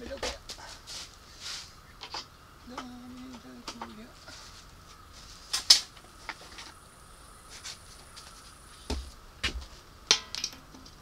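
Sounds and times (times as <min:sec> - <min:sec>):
dull thuds of parts set down: 0:08.9 - 0:11.0.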